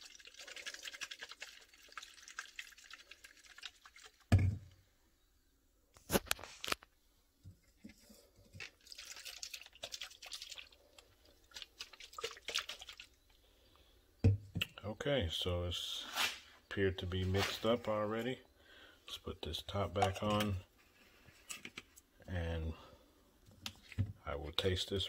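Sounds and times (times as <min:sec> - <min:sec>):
fizzy water sloshing in plastic bottle: 0:00.0 - 0:04.3, 0:08.5 - 0:13.2
bottle handling: 0:04.3 - 0:04.7, 0:19.8 - 0:20.7.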